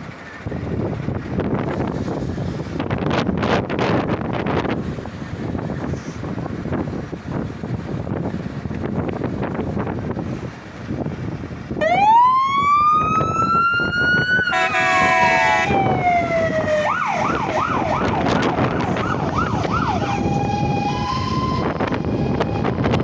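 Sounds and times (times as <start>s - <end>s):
truck diesel engine: 0.0s - 23.0s
fire engine siren: 11.4s - 23.0s
horn blast: 14.5s - 15.9s.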